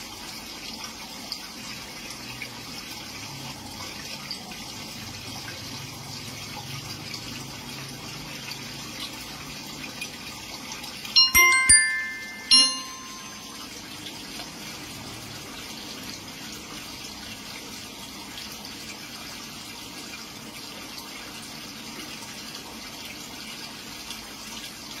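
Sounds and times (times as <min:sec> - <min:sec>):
aquarium aeration bubbling: 0:00.0 - 0:25.0
chime-like struck note: 0:11.2 - 0:13.7.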